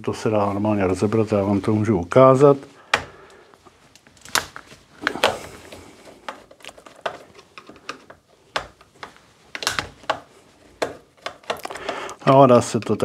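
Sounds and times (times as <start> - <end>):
screwdriver clicking on plastic: 6.2 - 12.0.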